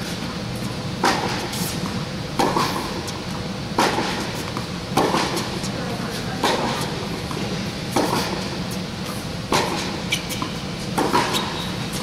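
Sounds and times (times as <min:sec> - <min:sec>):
steady low hum: 0:00.0 - 0:12.0
tennis ball struck by racket: 0:01.0 - 0:03.0, 0:03.8 - 0:05.6, 0:06.4 - 0:12.0.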